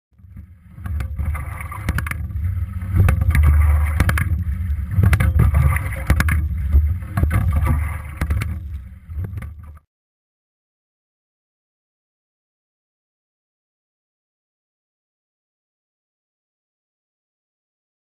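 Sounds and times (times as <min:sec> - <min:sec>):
oars knocking and clicking: 0:00.2 - 0:09.8
water rushing and splashing: 0:00.2 - 0:09.8.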